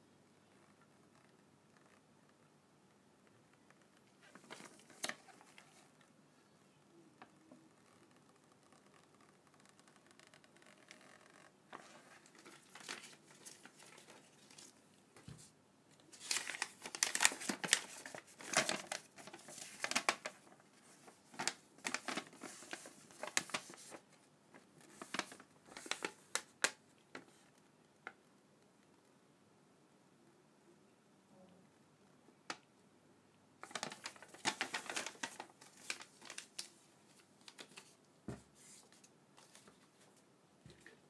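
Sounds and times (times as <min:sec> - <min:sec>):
paper rustling and crinkling: 0:04.1 - 0:06.0, 0:07.2 - 0:27.6, 0:33.6 - 0:40.2.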